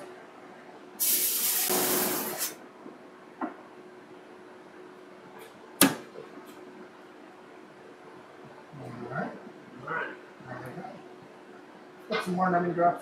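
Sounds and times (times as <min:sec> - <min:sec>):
hiss: 0:01.0 - 0:02.6.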